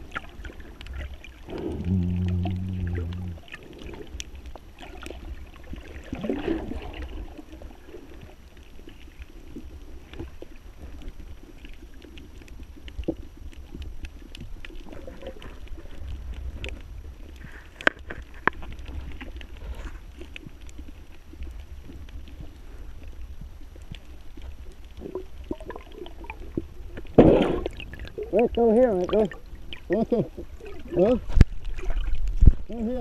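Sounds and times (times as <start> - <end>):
underwater rumble: 0.0 - 33.0
sharp clicks and crackles: 8.1 - 32.8.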